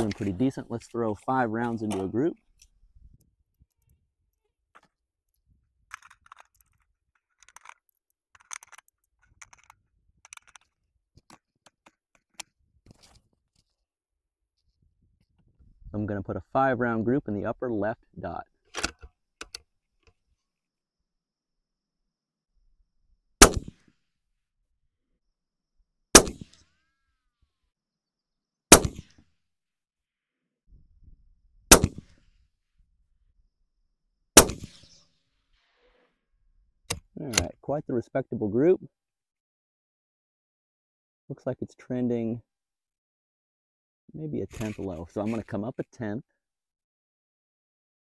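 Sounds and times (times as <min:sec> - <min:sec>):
cartridges loaded into magazine: 0:05.9 - 0:12.5
metallic clicks and scrapes: 0:05.9 - 0:13.2, 0:44.5 - 0:45.6
suppressed rifle shots: 0:23.4 - 0:23.8, 0:26.1 - 0:26.6, 0:28.7 - 0:29.2, 0:31.7 - 0:32.2, 0:34.4 - 0:35.0.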